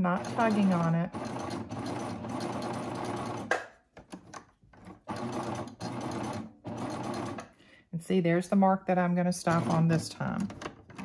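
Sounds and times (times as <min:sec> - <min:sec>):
serger machine stitching: 0:00.0 - 0:03.5, 0:05.0 - 0:07.5, 0:09.4 - 0:10.5.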